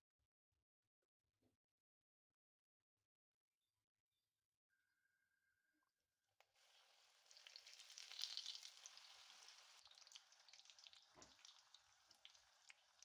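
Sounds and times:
deep-frying sizzle with pops: 6.6 - 13.0.

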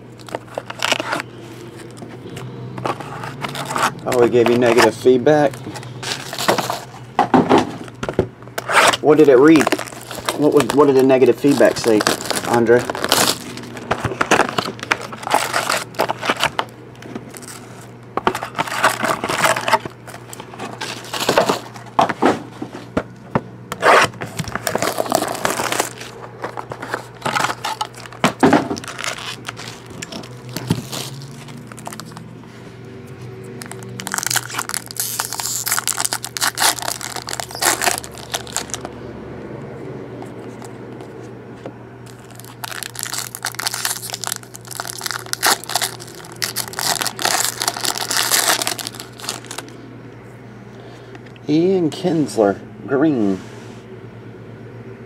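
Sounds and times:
plastic wrap crinkling and tearing: 0.2 - 2.0, 2.9 - 6.9, 8.6 - 21.7, 23.8 - 32.3, 33.6 - 38.9, 42.0 - 49.8
box and packs handled: 0.2 - 23.1, 23.7 - 32.4, 33.6 - 39.0, 42.0 - 49.8.

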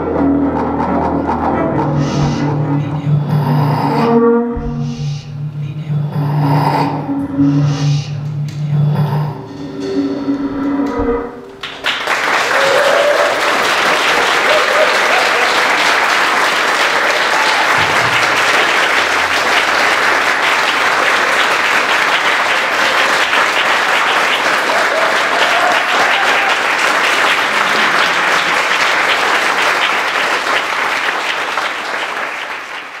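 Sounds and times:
audience applauding: 11.5 - 33.0.

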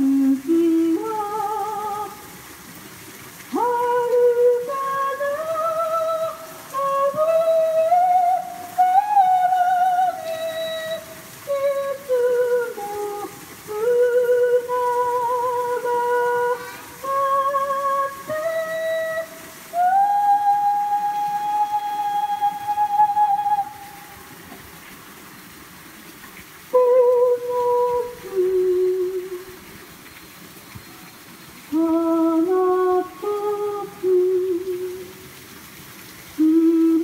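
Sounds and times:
woman singing unaccompanied: 0.0 - 2.4, 3.5 - 24.3, 26.7 - 29.8, 31.7 - 35.3, 36.4 - 37.0.

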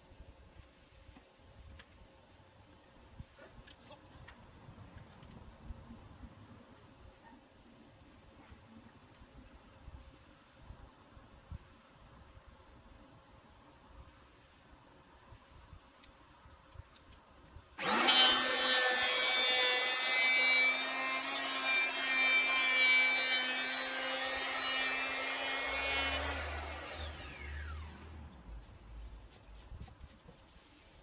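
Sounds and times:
electric planer planing wood: 17.8 - 28.2.

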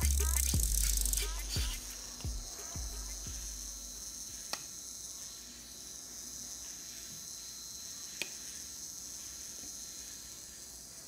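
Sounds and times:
high-pitched transformer buzz: 0.0 - 7.8.

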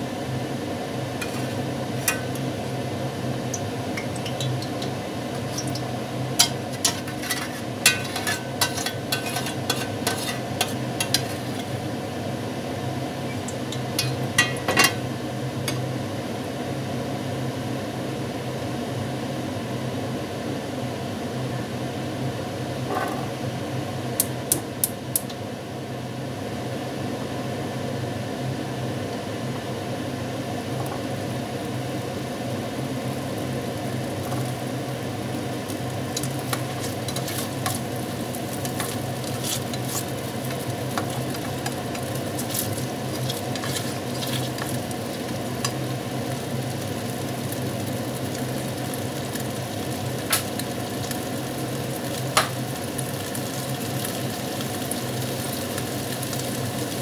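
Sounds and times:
utensils clinking against pans: 1.2 - 2.4, 3.5 - 11.8, 13.3 - 15.0, 36.2 - 37.9, 38.6 - 44.8.

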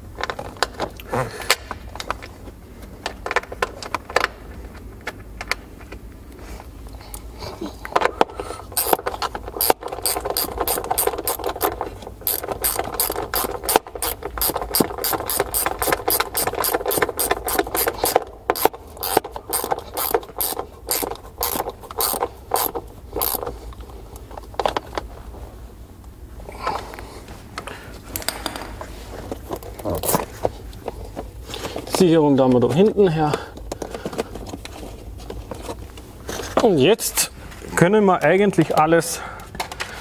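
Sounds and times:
ratcheting clicks: 8.8 - 23.5.

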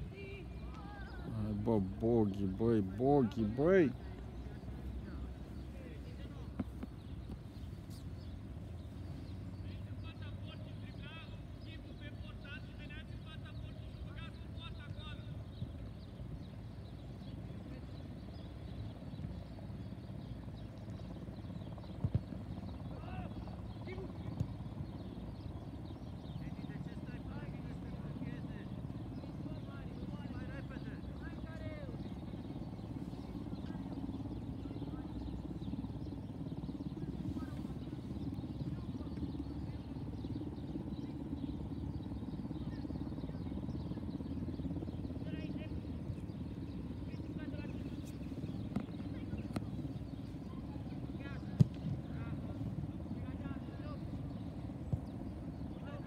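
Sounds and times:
distant shouts of players: 0.0 - 4.0.

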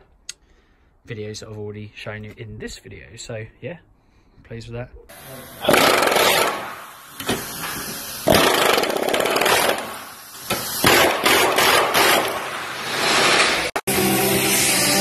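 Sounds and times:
power chisel hammering metal: 8.3 - 12.4.

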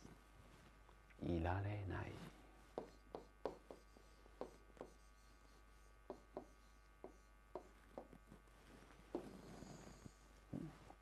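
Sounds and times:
pen writing on a board: 2.7 - 8.2.

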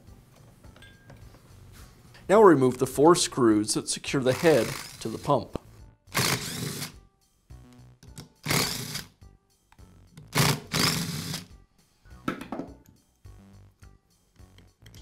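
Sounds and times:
soft background music: 0.0 - 15.0
cordless screwdriver running: 4.3 - 5.4, 6.1 - 7.0, 8.4 - 9.1, 10.3 - 11.5.

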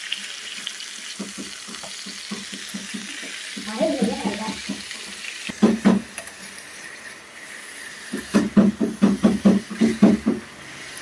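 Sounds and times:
meat sizzling in a pan: 0.0 - 11.0
metal spatula scraping a pan: 6.1 - 8.4.

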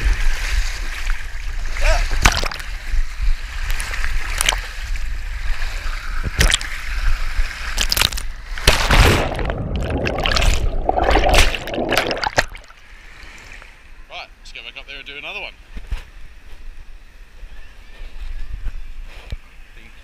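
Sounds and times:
knocks and splashes: 2.0 - 2.8, 3.8 - 4.7, 6.2 - 7.0, 7.6 - 12.7
water rushing down slide: 8.8 - 12.7.

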